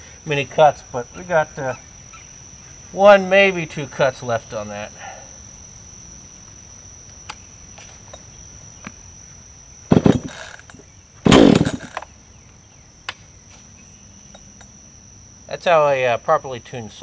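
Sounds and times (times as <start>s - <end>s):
chainsaw engine running: 11.3s - 12.0s.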